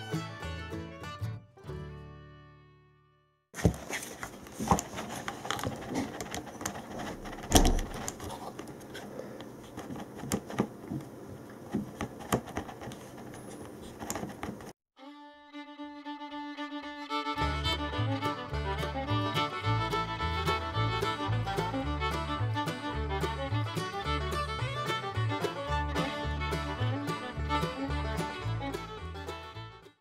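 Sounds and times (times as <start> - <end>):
fiddle and guitar music: 0.0 - 3.1, 15.0 - 30.0.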